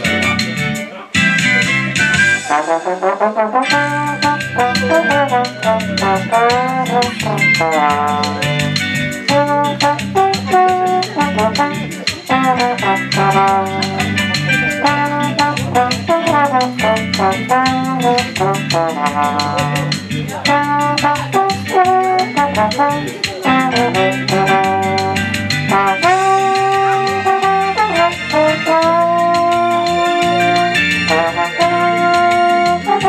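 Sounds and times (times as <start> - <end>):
backing track with drum beat: 0.0 - 33.0
trombone melody: 2.2 - 33.0.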